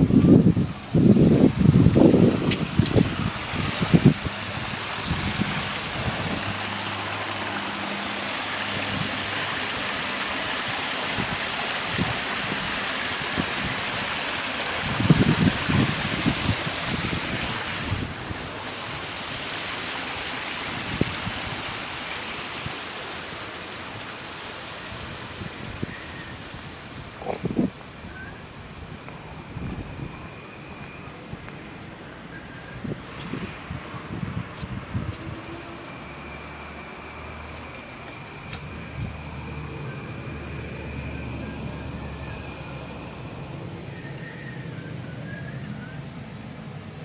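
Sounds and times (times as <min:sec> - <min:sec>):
small waterfall splashing over stones: 0:01.0 - 0:26.8.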